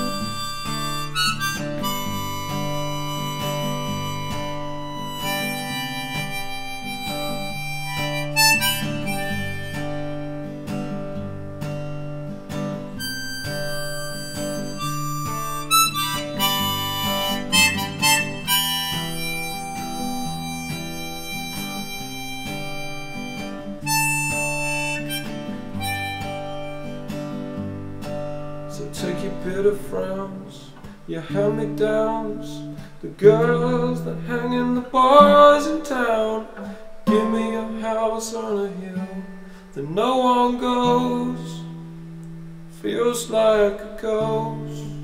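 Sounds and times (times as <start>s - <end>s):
harmonica solo: 0.0s - 11.3s, 12.8s - 29.0s
acoustic guitar accompaniment: 0.0s - 45.0s.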